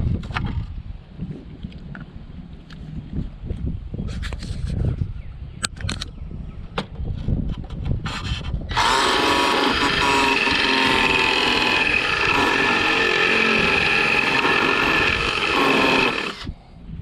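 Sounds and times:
cordless drill drilling: 8.7 - 16.5.

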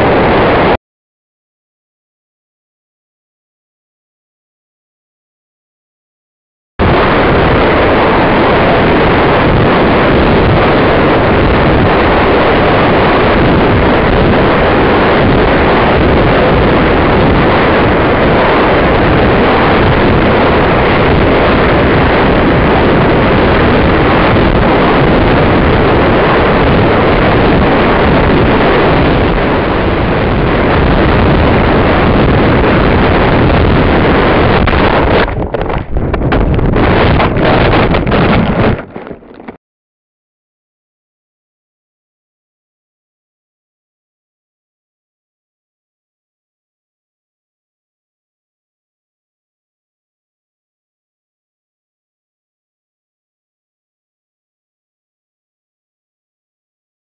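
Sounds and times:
wind rushing over microphone: 0.0 - 0.8, 6.8 - 39.6
knocks and rustles in treetops: 34.6 - 39.6.

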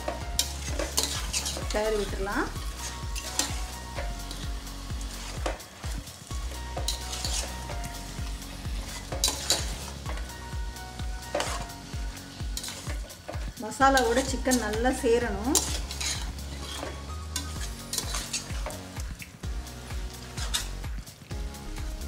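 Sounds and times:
ladle scraping a metal pot: 0.0 - 6.0, 6.7 - 7.8, 8.7 - 10.3, 11.2 - 14.9, 15.5 - 19.0, 20.2 - 20.8
food sizzling: 0.0 - 22.0.

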